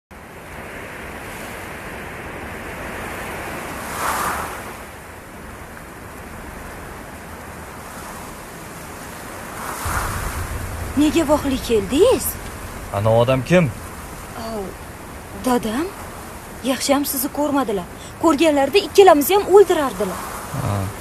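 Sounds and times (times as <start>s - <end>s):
steady rushing noise: 9.6s - 21.0s
car driving past: 9.8s - 16.7s.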